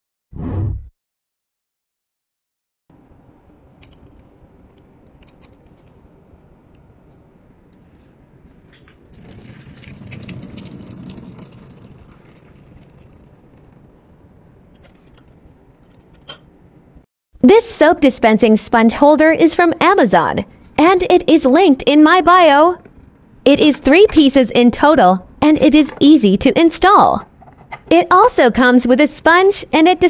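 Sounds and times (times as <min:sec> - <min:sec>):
water pouring into metal sink: 0:09.2 - 0:13.9.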